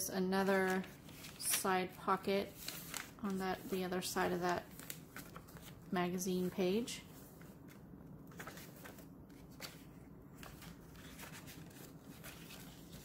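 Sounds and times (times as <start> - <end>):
paper pages turning: 0.4 - 13.0.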